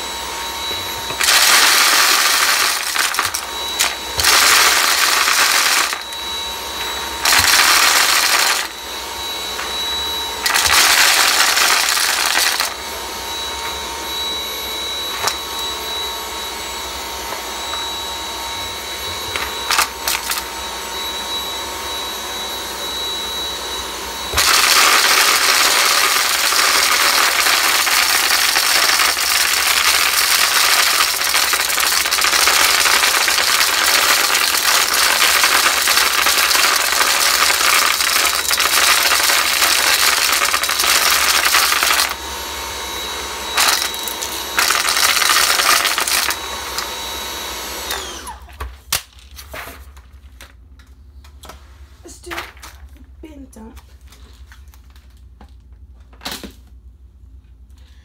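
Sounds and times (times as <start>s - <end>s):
stick vacuum whining: 0.0s - 49.8s
beans crunching and rattling: 1.1s - 6.2s, 7.2s - 8.7s, 10.4s - 12.8s, 19.4s - 20.4s, 24.4s - 42.2s, 43.6s - 46.4s.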